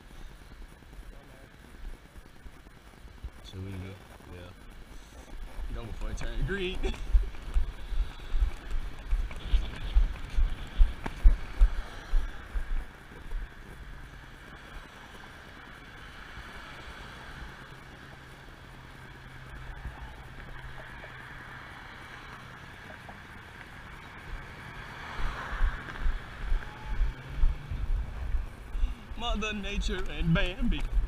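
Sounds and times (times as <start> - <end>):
wind buffeting microphone: 5.3 - 14.0, 25.1 - 31.0
cars passing: 5.7 - 31.0
low engine hum: 5.8 - 31.0.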